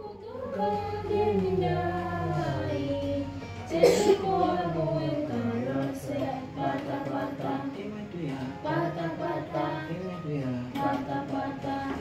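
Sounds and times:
children singing together: 0.0 - 12.0.

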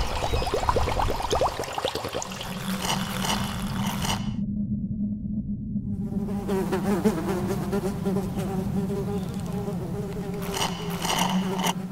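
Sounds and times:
fly buzzing: 2.4 - 4.4, 6.1 - 11.9.

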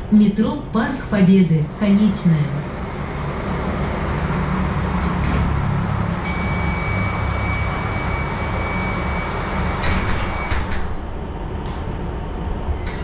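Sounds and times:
bus road rumble: 0.0 - 12.8
high-pitched whine: 0.9 - 11.3.

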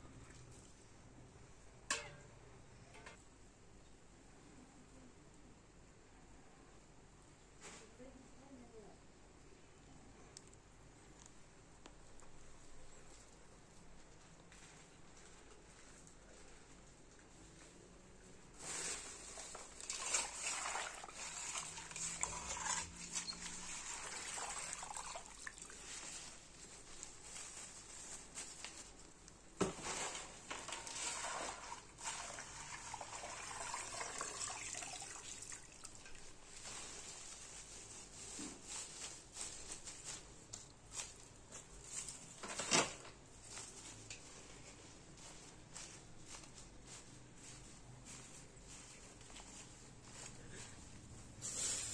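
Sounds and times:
leafy branches rustling: 18.4 - 32.2, 35.6 - 51.9
wet handling in metal bowl: 19.3 - 25.8.

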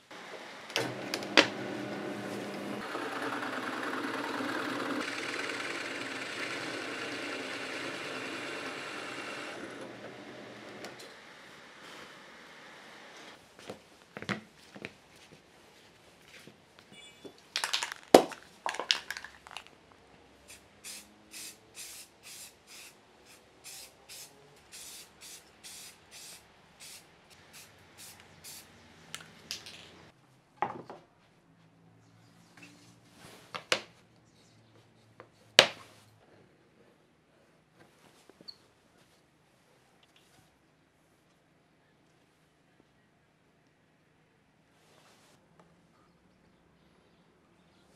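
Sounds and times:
spray paint can hissing: 20.5 - 28.7
wooden pieces knocking on workbench: 30.6 - 31.0.

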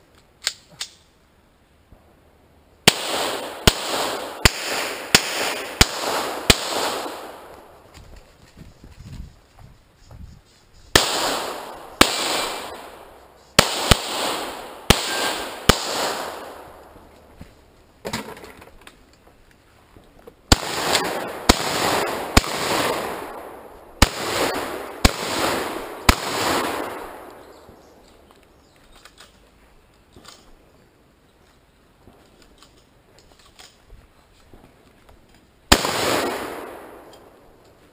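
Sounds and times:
rifle gunshots: 2.8 - 7.8, 11.0 - 16.8, 20.5 - 27.5, 35.7 - 37.4
gunshot echo off woods: 2.9 - 7.8, 11.0 - 17.0, 20.5 - 27.8, 35.7 - 37.4.

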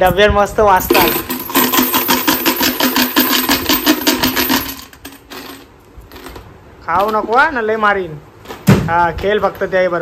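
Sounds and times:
coins rattling in plastic jar: 0.8 - 6.4.

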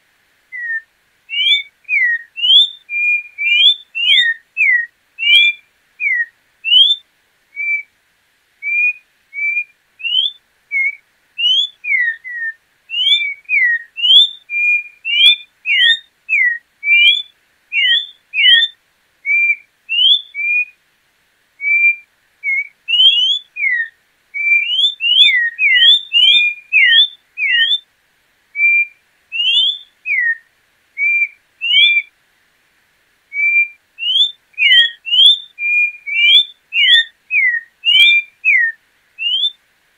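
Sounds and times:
bird whistling short notes: 0.6 - 7.0, 28.6 - 30.4, 33.3 - 39.6.

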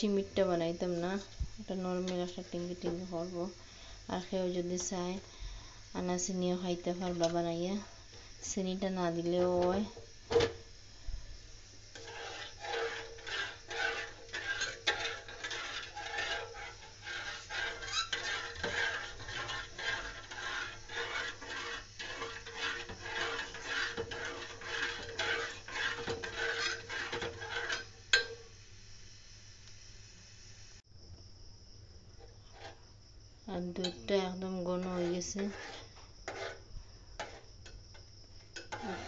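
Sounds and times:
metal spoon scraping metal pot: 11.9 - 28.4, 33.8 - 37.8, 38.6 - 39.0.

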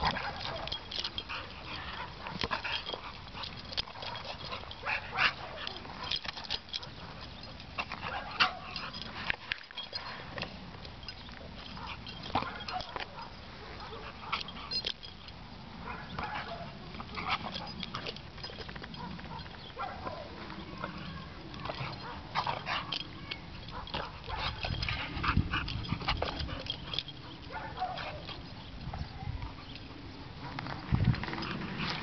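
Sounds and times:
dog breathing excitedly: 23.7 - 28.4.

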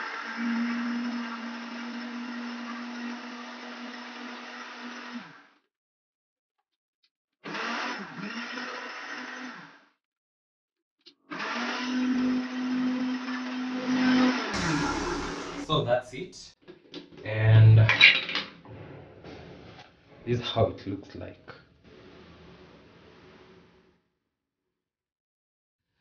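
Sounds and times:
blender motor pulsing: 0.0 - 5.5, 7.4 - 9.9, 11.3 - 15.8.

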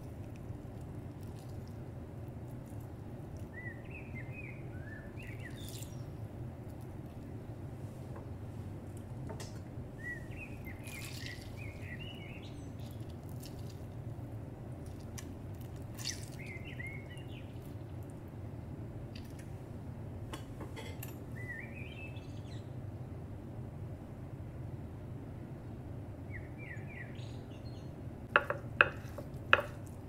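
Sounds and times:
steady low hum: 0.0 - 30.0
bird chirping: 3.5 - 6.2, 10.0 - 13.0, 16.0 - 17.9, 21.3 - 22.7, 26.3 - 27.9.

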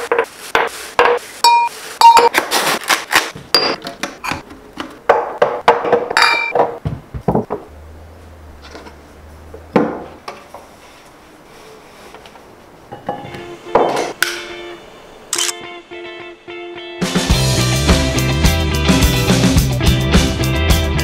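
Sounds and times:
objects knocking on countertop: 5.1 - 7.6
glass clinks: 6.2 - 6.6.

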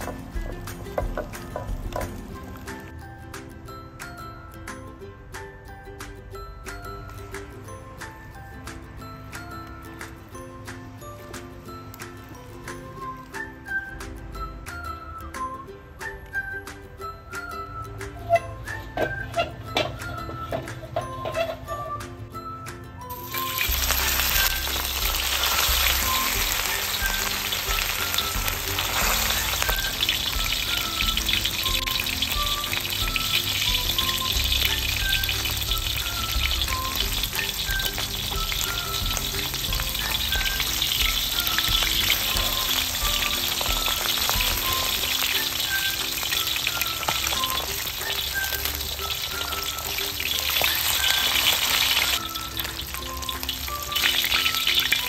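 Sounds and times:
soft background music: 0.0 - 55.0
fish sizzling in hot oil: 23.1 - 55.0.

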